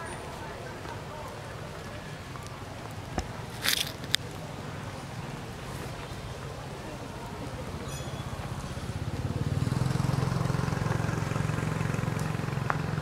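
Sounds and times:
vehicle engine pulsing hum: 0:05.0 - 0:13.0.

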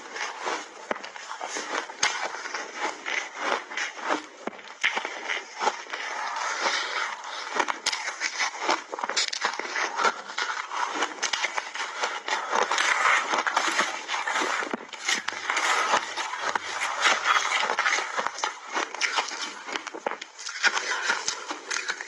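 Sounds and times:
ice being crunched and chewed: 0:00.0 - 0:22.0
metal spoon scraping a bowl: 0:13.5 - 0:18.6.

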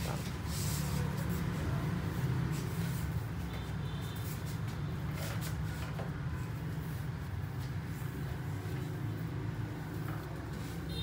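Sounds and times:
rubbing and handling sounds: 0:00.0 - 0:08.6.

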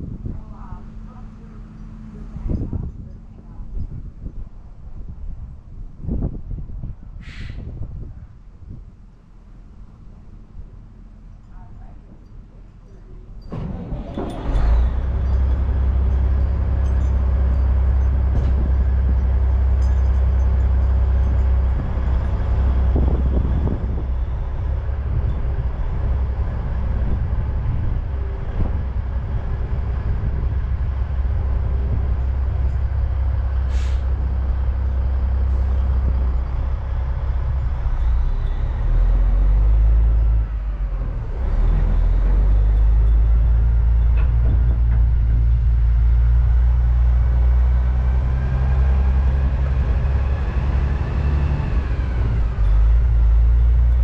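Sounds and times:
diesel truck engine rumbling: 0:00.0 - 0:54.0
brief high hiss: 0:07.2 - 0:07.7.

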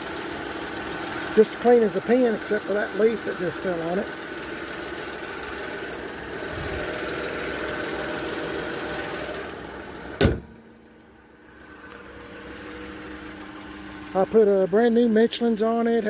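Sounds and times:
car engine idling: 0:00.0 - 0:16.0
car hood slamming shut: 0:10.1 - 0:10.7.

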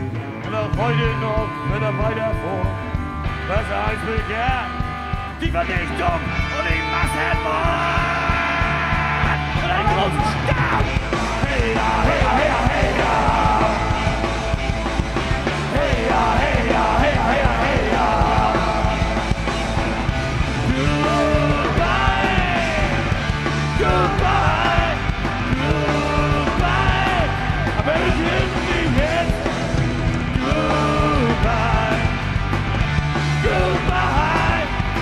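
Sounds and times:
punk rock band playing: 0:00.0 - 0:35.0
person yelling over band: 0:06.6 - 0:11.0.

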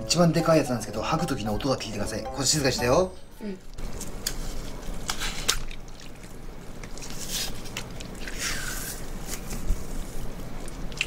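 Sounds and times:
wet squelching spurts: 0:04.2 - 0:09.4.

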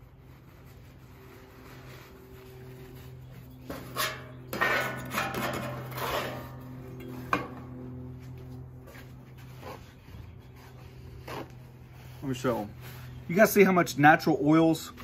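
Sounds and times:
paper towel scraping griddle: 0:00.0 - 0:06.6
steady low hum: 0:00.0 - 0:15.0.

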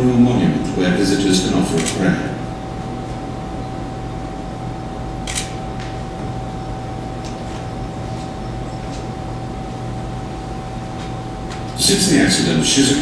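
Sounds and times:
steady hum with high tone: 0:00.0 - 0:13.0
sharp clicks: 0:05.2 - 0:05.6.

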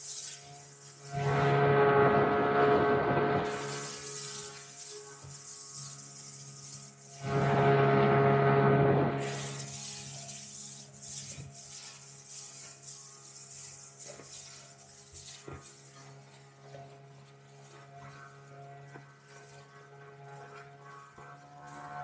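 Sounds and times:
wind and water hiss: 0:00.0 - 0:08.2
motorboat engine humming: 0:00.8 - 0:04.8, 0:07.0 - 0:10.5.

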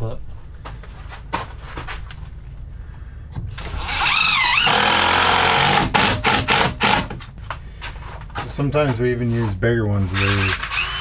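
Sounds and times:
impact driver driving screw: 0:03.6 - 0:07.2, 0:10.2 - 0:11.0.

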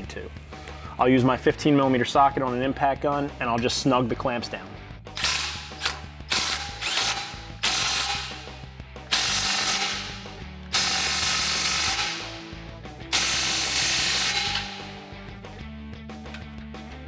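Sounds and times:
impact wrench hammering: 0:05.2 - 0:08.5, 0:09.1 - 0:15.2.

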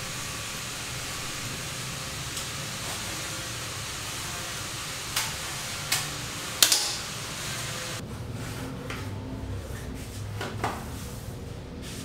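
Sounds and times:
steady hiss: 0:00.0 - 0:08.0.

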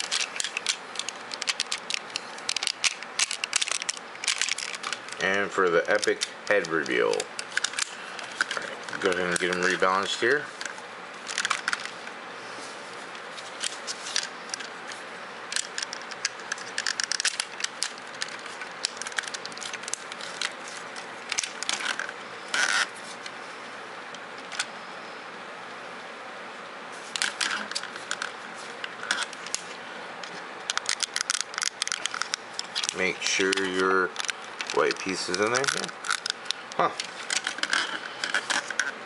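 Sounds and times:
plastic toy parts clicking: 0:00.0 - 0:09.8, 0:15.5 - 0:20.5, 0:30.7 - 0:38.9.

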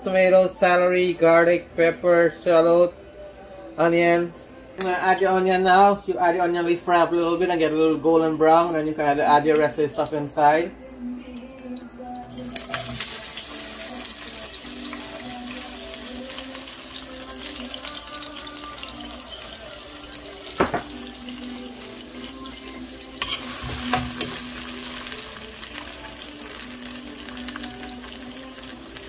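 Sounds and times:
onion sizzling in hot oil: 0:12.3 - 0:29.0.

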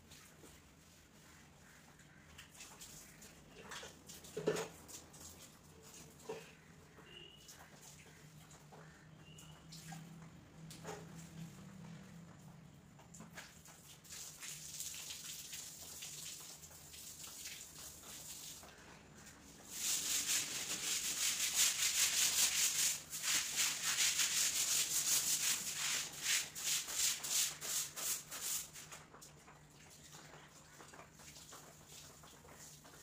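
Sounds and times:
stick broom scrubbing wet floor: 0:17.6 - 0:29.1.

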